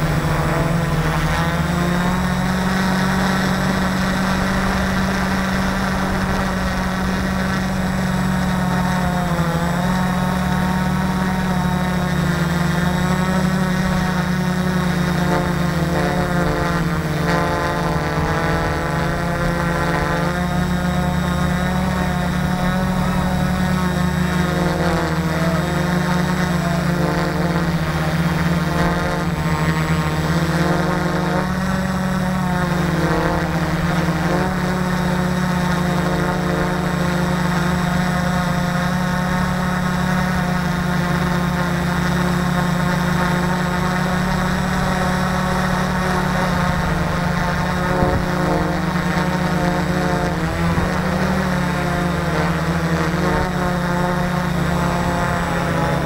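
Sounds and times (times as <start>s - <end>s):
multicopter propellers whirring: 0.0s - 56.0s.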